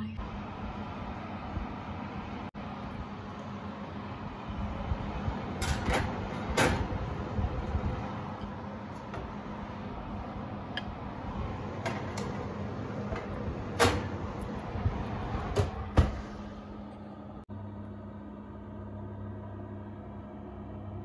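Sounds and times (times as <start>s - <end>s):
oven door shutting: 5.2s - 16.8s.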